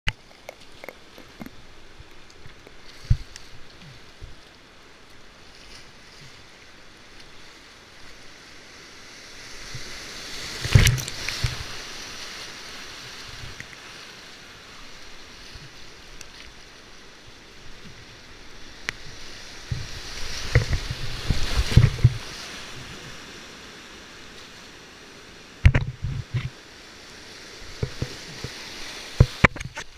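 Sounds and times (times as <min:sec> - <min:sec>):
paddle strokes: 0:00.1 - 0:08.4, 0:09.4 - 0:24.8, 0:25.6 - 0:29.9
whitewater rushing: 0:00.1 - 0:29.9
water splashing against boat: 0:09.4 - 0:23.6, 0:27.5 - 0:29.9.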